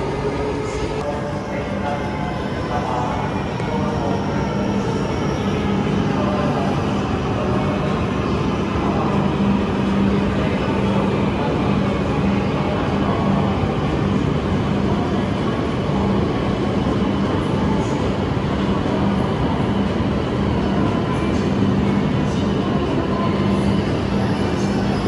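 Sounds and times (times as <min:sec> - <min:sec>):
train running rumble: 0:00.0 - 0:25.0.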